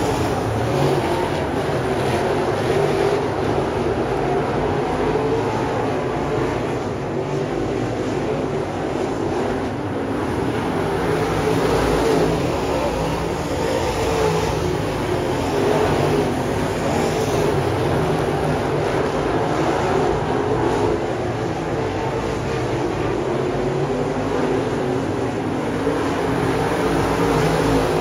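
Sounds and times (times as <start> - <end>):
race car engines: 0.0 - 28.0.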